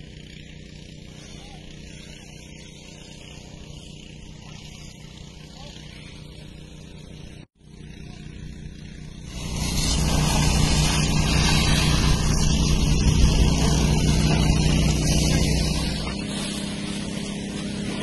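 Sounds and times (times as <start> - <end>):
engine running steadily: 0.0 - 18.0
hose jet spraying water: 0.5 - 7.4, 8.8 - 18.0.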